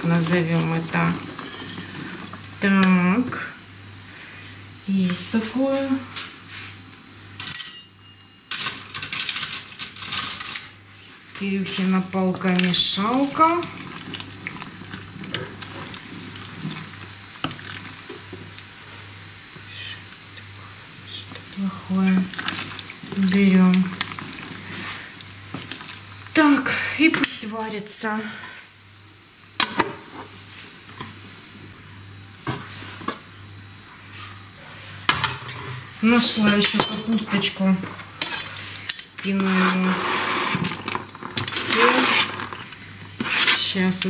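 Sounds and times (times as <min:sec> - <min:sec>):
low steady hum: 0:00.0 - 0:29.6
stirring stick scraping metal pot: 0:00.1 - 0:02.3, 0:38.2 - 0:44.0.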